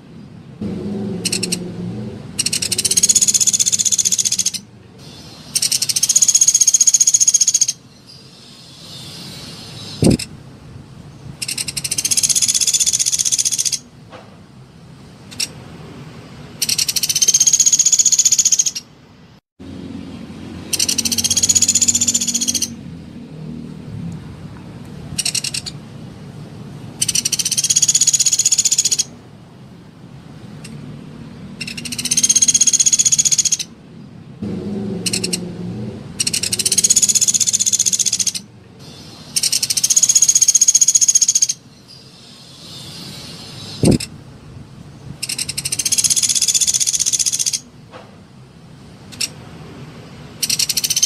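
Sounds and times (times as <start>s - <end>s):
woodpecker rattling trill: 1.2s - 1.6s, 2.4s - 10.3s, 11.4s - 13.9s, 16.6s - 18.9s, 20.6s - 22.8s, 25.2s - 25.8s, 27.0s - 29.1s, 31.6s - 33.7s, 35.0s - 35.4s, 36.2s - 41.6s, 45.2s - 47.7s, 50.4s - 51.0s.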